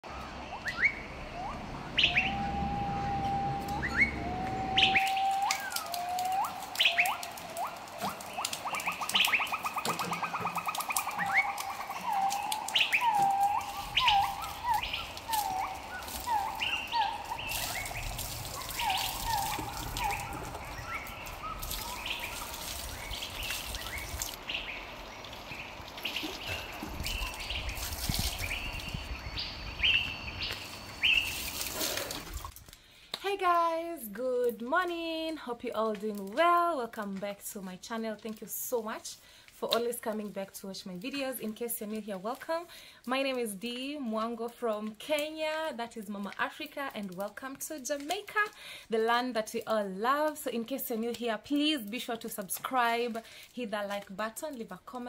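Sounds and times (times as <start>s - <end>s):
birds chirping and calling: 0.0s - 32.0s.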